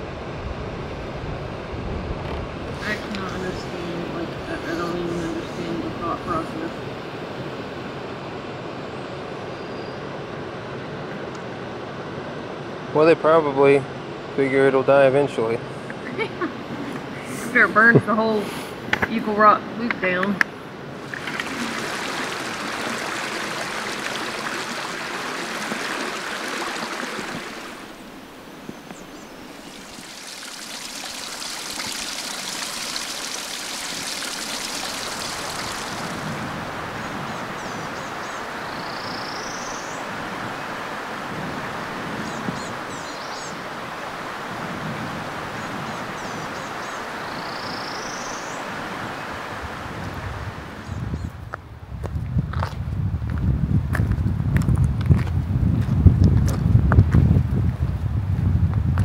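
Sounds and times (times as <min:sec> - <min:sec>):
wind rumbling on microphone: 0:00.0 - 0:09.5, 0:15.9 - 0:59.0
flowing creek water: 0:02.6 - 0:08.7, 0:19.2 - 0:51.0
faint bird chirps: 0:08.9 - 0:10.1, 0:37.1 - 0:40.0, 0:45.6 - 0:48.6.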